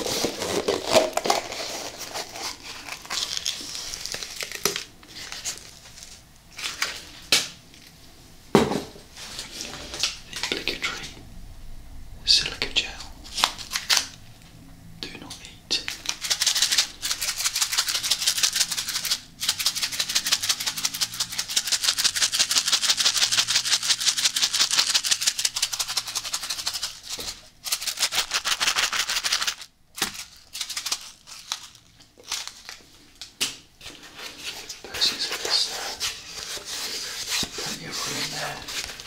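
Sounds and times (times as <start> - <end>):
sachet contents rattling: 0.2 - 6.0, 15.9 - 32.8.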